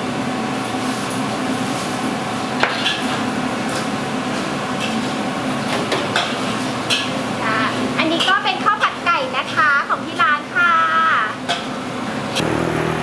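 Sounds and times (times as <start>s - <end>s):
steady background hum: 0.0s - 12.4s.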